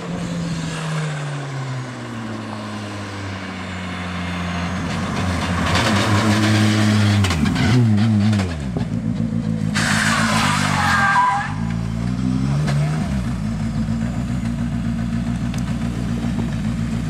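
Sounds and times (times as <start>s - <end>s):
rally car engine at high revs: 4.6s - 17.0s
engine crackles: 11.6s - 17.0s.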